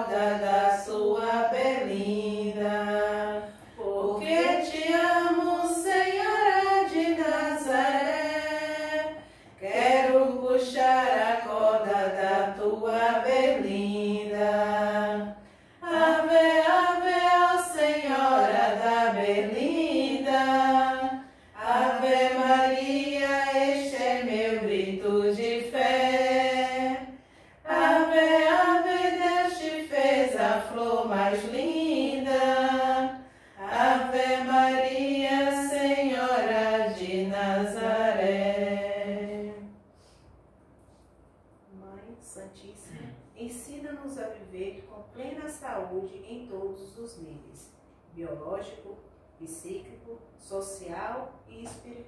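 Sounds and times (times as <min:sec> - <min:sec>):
women singing a hymn: 0:00.0 - 0:39.8.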